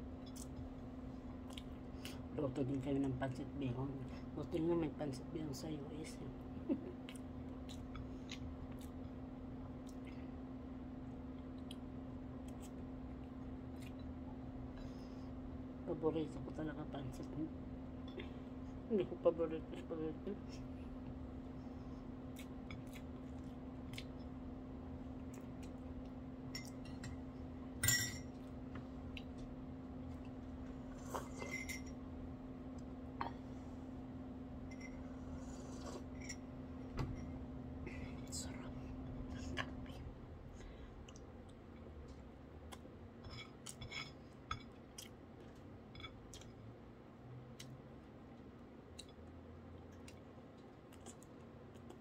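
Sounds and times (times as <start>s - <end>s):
steady low hum: 0.0s - 52.0s
person chewing food: 1.3s - 2.2s, 7.0s - 10.4s, 22.0s - 27.3s, 39.3s - 52.0s
spoon clinking against a mug: 27.8s - 28.3s.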